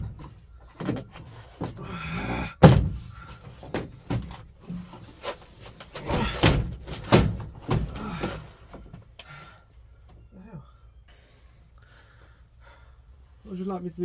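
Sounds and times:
plastic panel knocking against metal roof: 6.0 - 8.4.

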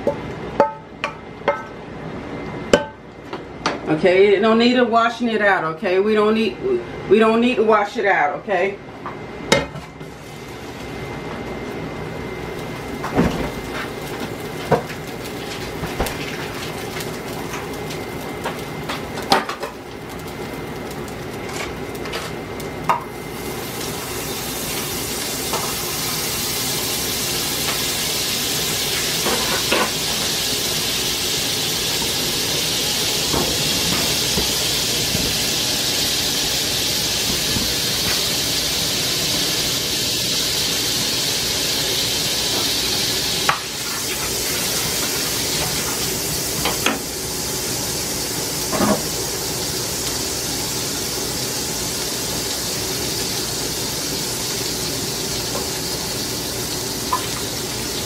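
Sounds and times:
frying pan sizzling: 9.6 - 58.0
pan and utensils clinking: 29.0 - 30.4.

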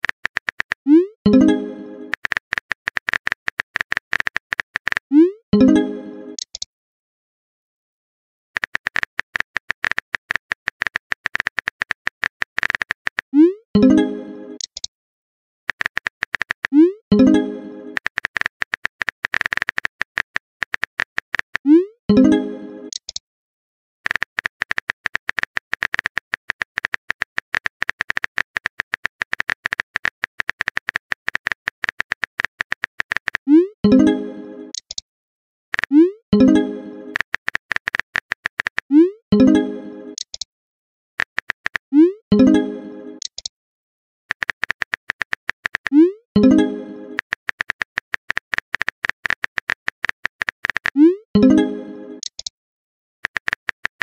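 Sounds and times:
phone keyboard taps: 44.3 - 45.9, 47.2 - 50.9.

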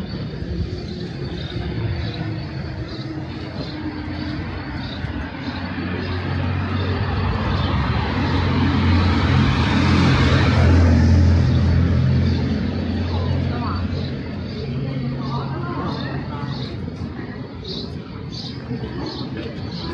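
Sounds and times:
vehicle engine driving past: 1.3 - 15.6.

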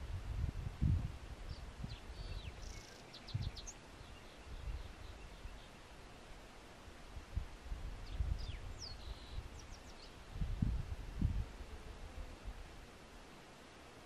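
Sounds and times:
wind rumbling on microphone: 0.0 - 5.6, 6.9 - 13.0
small birds chirping: 1.4 - 6.4, 8.0 - 10.3.

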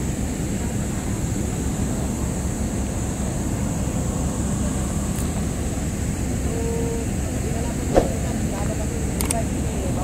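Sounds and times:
bus diesel engines rumbling: 0.0 - 10.0.

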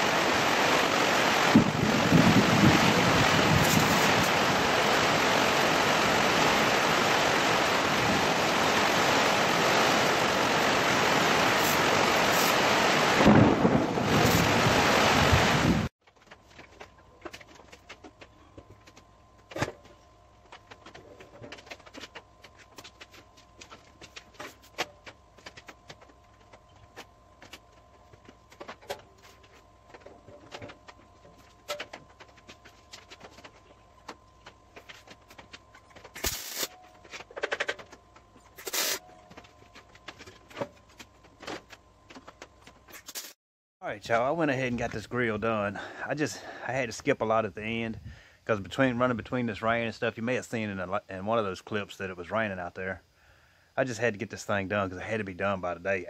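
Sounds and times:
welding arc crackling hiss: 0.0 - 15.9, 36.0 - 36.8, 38.5 - 39.0, 42.9 - 43.4.

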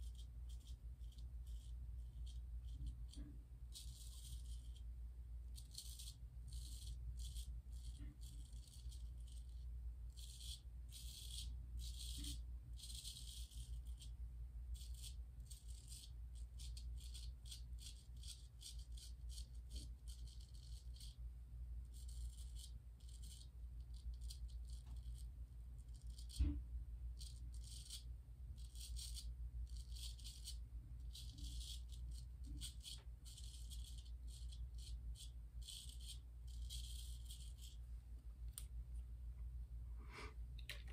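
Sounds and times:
low steady hum: 0.0 - 40.9
razor scraping stubble: 5.6 - 14.1, 14.8 - 21.2, 22.0 - 26.6, 27.2 - 37.8.

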